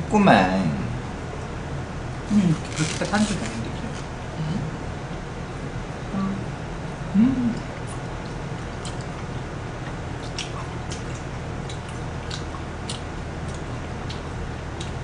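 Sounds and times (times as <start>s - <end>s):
steady low hum: 0.0s - 15.0s
people chewing noodles: 7.2s - 15.0s.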